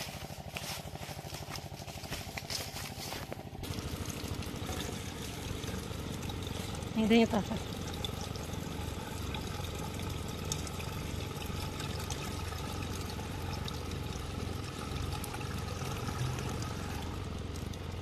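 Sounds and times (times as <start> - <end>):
water pouring into hose: 3.6 - 18.0.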